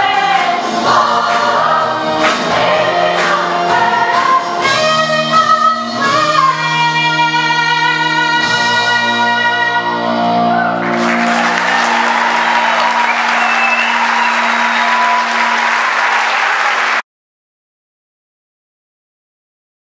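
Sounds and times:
choir holding a chord: 0.0 - 4.4
audience applause: 10.5 - 17.0.

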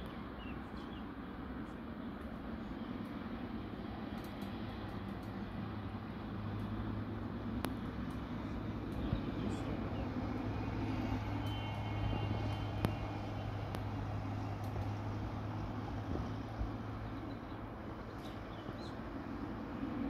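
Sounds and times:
distant jet engines rumbling: 0.0 - 20.0
faint clicks: 4.1 - 5.5, 7.6 - 9.2.

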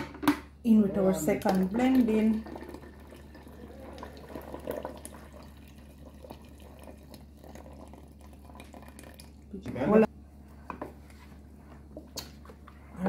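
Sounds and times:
juice pouring into a pot: 1.7 - 9.6.

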